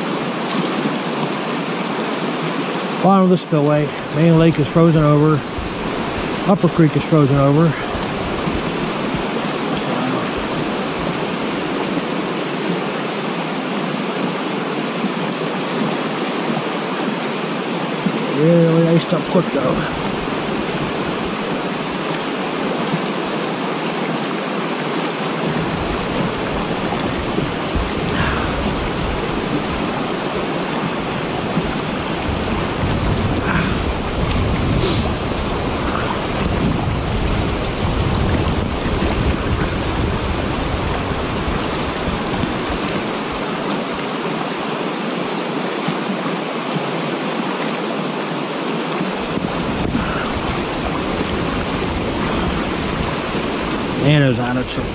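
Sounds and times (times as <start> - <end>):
water rushing over a dam: 0.0 - 54.9
wind buffeting microphone: 3.8 - 12.8, 25.4 - 43.7, 49.1 - 54.9.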